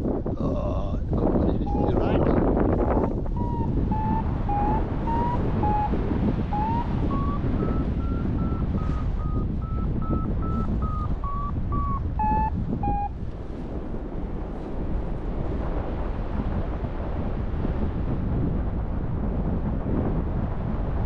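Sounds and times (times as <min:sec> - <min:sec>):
wind rush on microphone: 0:00.0 - 0:21.0
variometer short beeps: 0:03.4 - 0:13.1.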